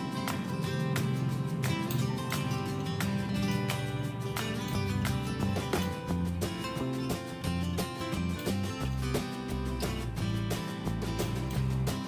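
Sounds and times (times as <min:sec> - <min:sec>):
strummed guitar with steady beat: 0:00.0 - 0:12.0.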